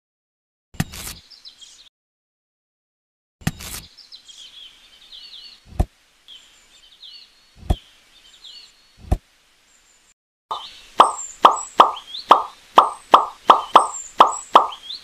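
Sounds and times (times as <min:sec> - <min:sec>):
birds chirping: 0:03.8 - 0:15.0.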